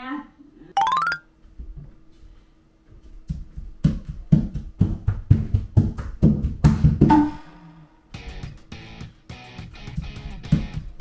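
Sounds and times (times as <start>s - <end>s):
feet stomping on wooden floor: 3.1s - 7.1s.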